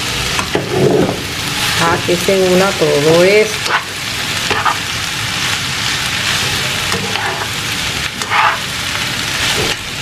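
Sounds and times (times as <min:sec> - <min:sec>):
food sizzling in frying pan: 0:00.0 - 0:10.0
metal tongs scraping and clacking on pan: 0:03.5 - 0:03.9, 0:04.5 - 0:04.9, 0:06.9 - 0:07.6, 0:08.2 - 0:08.7.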